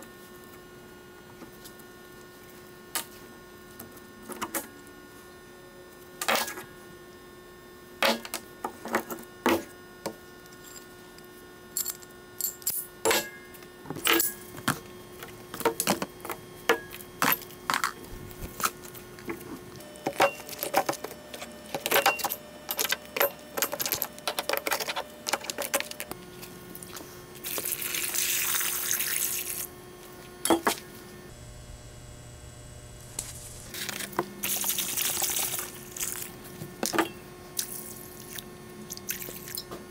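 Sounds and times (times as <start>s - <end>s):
steady background hum: 0.0s - 39.9s
water running into a tub: 27.5s - 29.7s, 34.4s - 36.2s.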